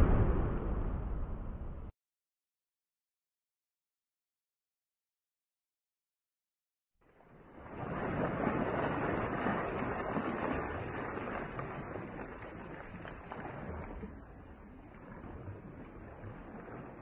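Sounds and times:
rushing noise: 0.0s - 1.9s.

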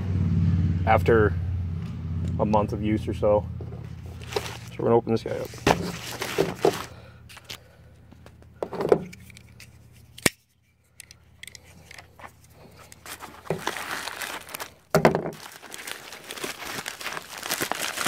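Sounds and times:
bubble mailer crinkling: 3.9s - 8.3s, 11.8s - 18.0s
loud plastic crackle: 4.1s - 7.6s, 13.0s - 18.0s.

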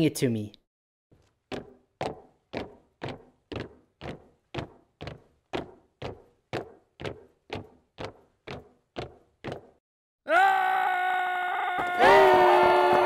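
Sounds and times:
steady beat of knocks: 1.4s - 9.8s.

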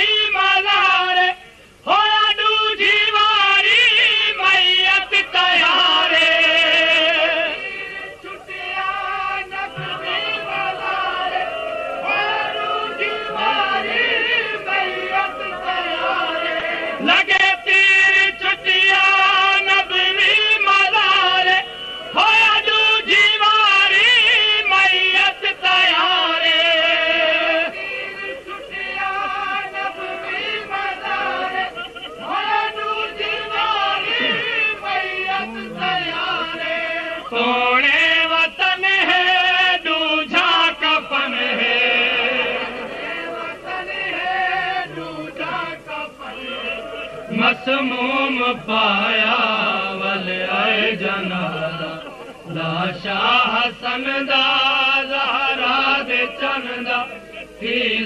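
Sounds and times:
person chanting a lament: 12.8s - 58.0s.

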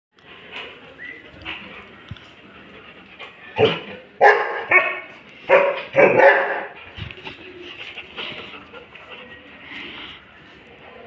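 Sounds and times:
dog barking: 3.6s - 6.8s.

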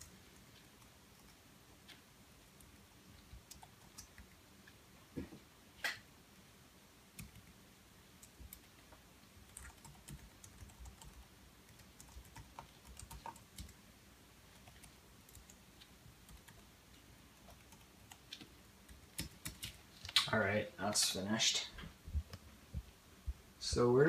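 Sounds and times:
faint keyboard typing: 0.0s - 4.8s, 7.1s - 13.8s, 14.4s - 20.3s.

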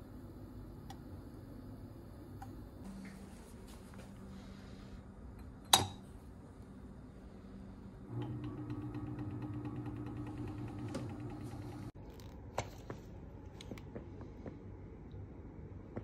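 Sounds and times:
stirrer motor hum: 8.0s - 12.0s.

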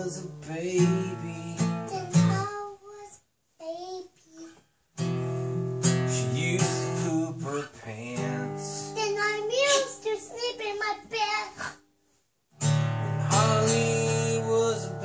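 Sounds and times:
acoustic guitar strumming: 0.0s - 2.7s, 5.0s - 11.3s, 12.5s - 15.0s
person singing: 0.0s - 3.0s, 13.3s - 15.0s.

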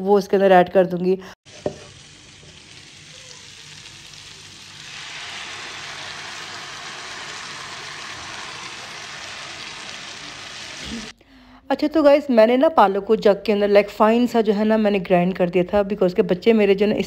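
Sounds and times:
potatoes sizzling in hot oil: 1.5s - 11.1s.

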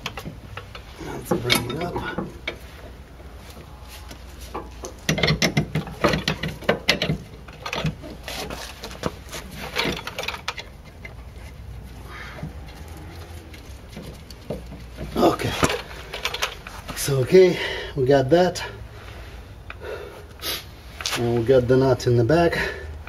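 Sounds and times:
metallic clicks and clunks: 0.0s - 11.6s, 12.3s - 17.0s.

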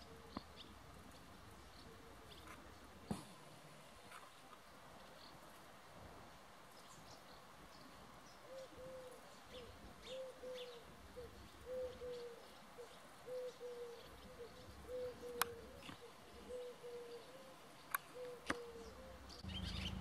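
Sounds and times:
swallows twittering: 17.9s - 20.0s.

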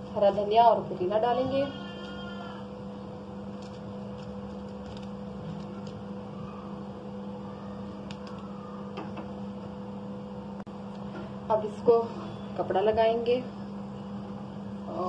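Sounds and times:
machine hum: 0.0s - 15.0s.

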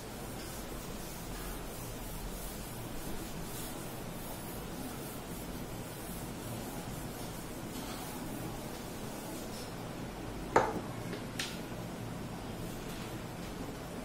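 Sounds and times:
eraser wiping chalkboard: 0.0s - 9.7s
steady background hiss: 0.0s - 14.0s.

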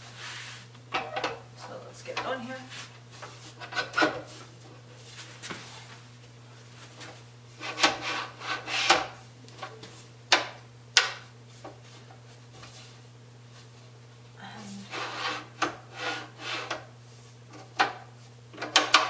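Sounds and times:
scraping rubs on pottery wheel: 0.0s - 0.7s, 2.5s - 4.5s, 7.5s - 9.2s, 14.8s - 17.4s
low steady hum: 0.0s - 19.0s.

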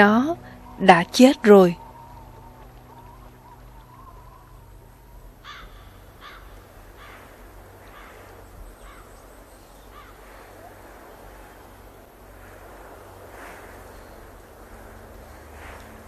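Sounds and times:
crow cawing: 1.8s - 9.1s, 9.9s - 10.8s.

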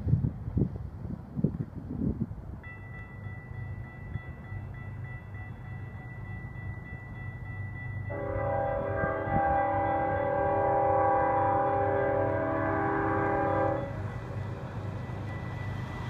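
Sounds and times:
locomotive air horn chord: 8.1s - 14.0s.

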